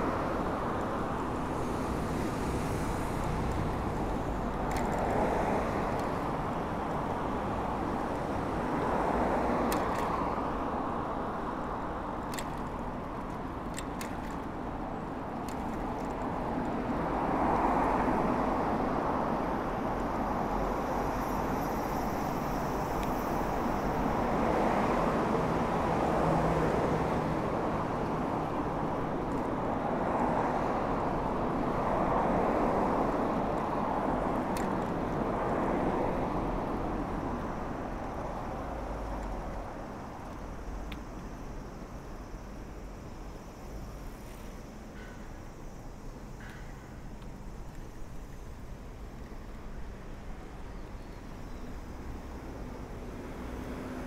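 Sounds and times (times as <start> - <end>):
cars passing: 0.0 - 54.0
light clicks: 4.5 - 6.3.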